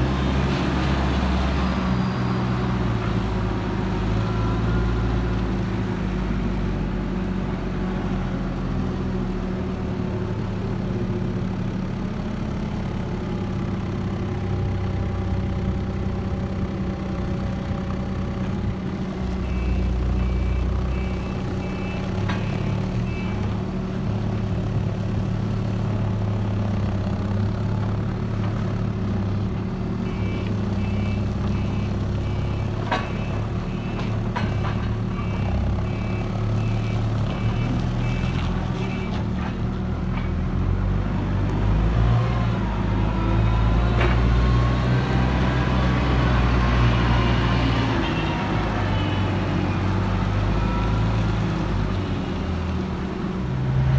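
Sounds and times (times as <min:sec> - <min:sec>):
reversing alarm beeps: 0:19.5 - 0:23.4, 0:30.1 - 0:34.1.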